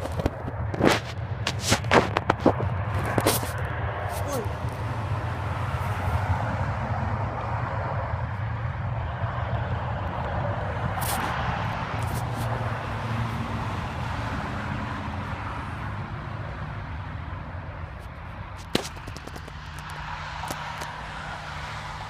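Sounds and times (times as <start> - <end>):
distant jet aircraft rumble: 0.0 - 22.0.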